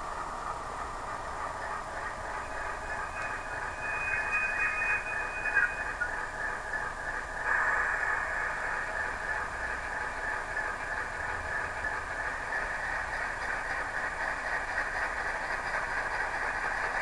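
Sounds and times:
thin hissy diesel engine noise: 0.0 - 17.0
thin high tone: 2.4 - 6.4.

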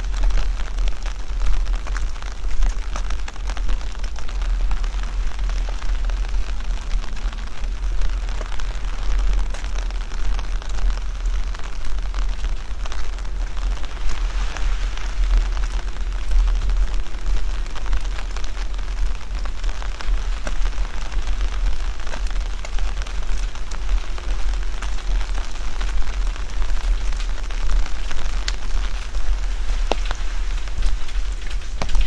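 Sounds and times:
constant low rumble: 0.0 - 32.0
rain pattering: 0.0 - 32.0.

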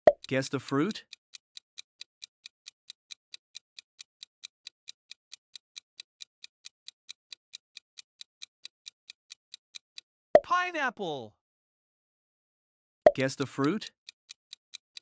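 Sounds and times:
countdown timer ticking: 10.4 - 10.9, 13.1 - 14.0.

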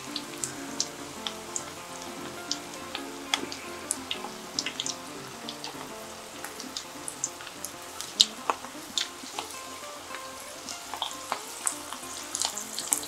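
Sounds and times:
food deep-frying in hot oil: 0.0 - 13.0
crackling oil pops: 4.2 - 13.0.

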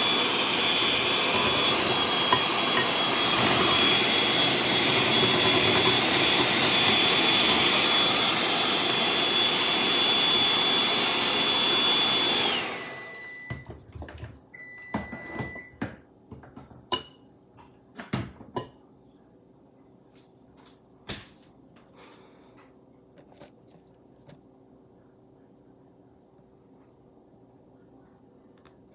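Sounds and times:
electric hand mixer whining: 0.0 - 13.7.

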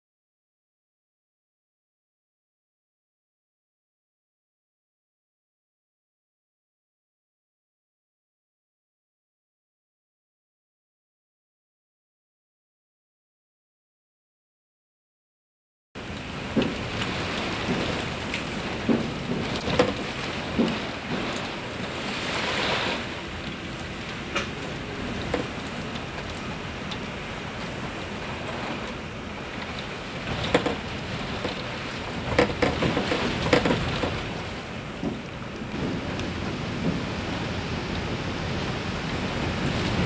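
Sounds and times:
rain lashing a window: 16.0 - 40.0.

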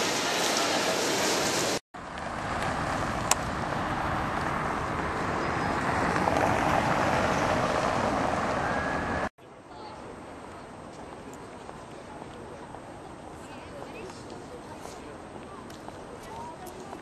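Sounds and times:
hissing indoor noise: 0.0 - 1.8
tyres rumbling on cobblestones: 0.0 - 9.3.

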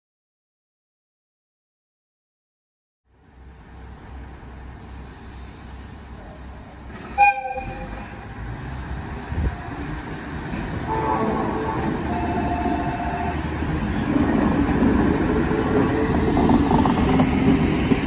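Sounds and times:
locomotive engine rumbling: 3.2 - 18.0
locomotive horn toot: 7.0 - 8.2, 10.9 - 13.5.

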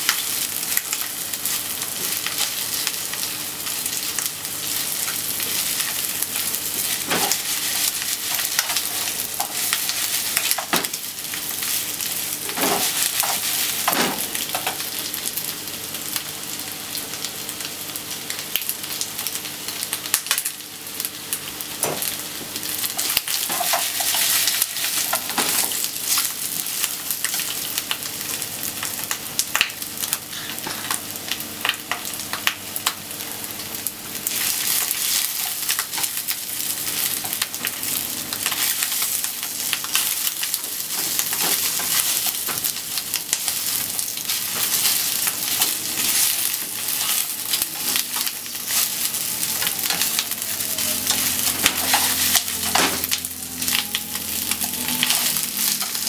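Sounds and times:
chicken sizzling in hot oil: 0.0 - 56.0
chopsticks stirring in pan: 4.6 - 14.8, 22.9 - 27.6, 38.4 - 56.0.

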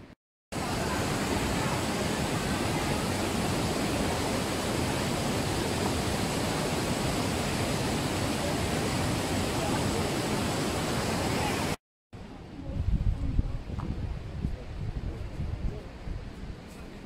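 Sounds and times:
cascading water rushing: 0.5 - 11.8.

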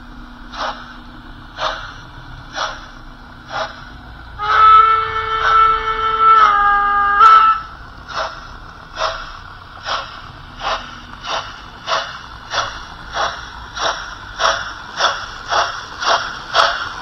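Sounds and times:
steam locomotive exhaust chuffs: 0.0 - 17.0.

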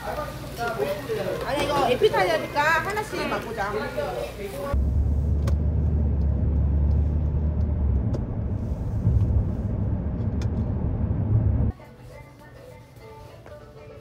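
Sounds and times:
car cabin road rumble: 4.8 - 11.7
quiet background music: 11.7 - 14.0.

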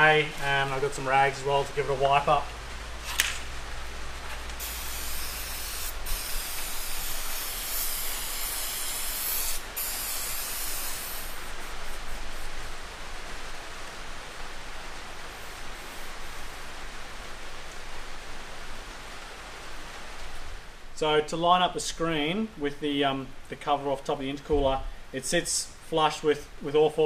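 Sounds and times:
aerosol can spraying: 4.6 - 12.8, 15.2 - 16.8
rag wiping rustling: 4.6 - 12.8, 14.2 - 17.2.

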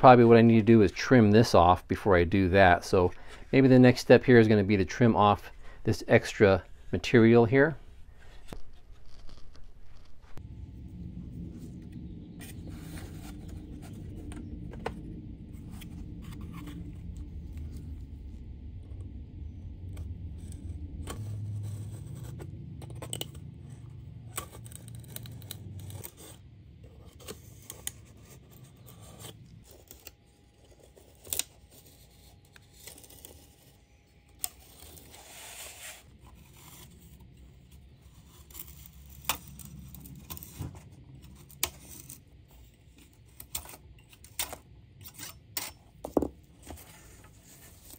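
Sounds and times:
low background hum: 0.0 - 47.9
knife scraping cuts along ruler: 43.3 - 45.9.

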